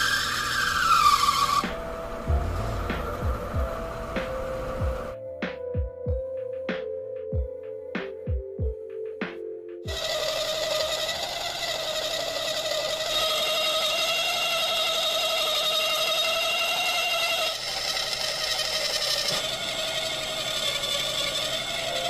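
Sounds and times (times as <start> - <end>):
cutting hiss: 0.0 - 5.2
lathe whine: 0.0 - 5.2, 9.9 - 22.0.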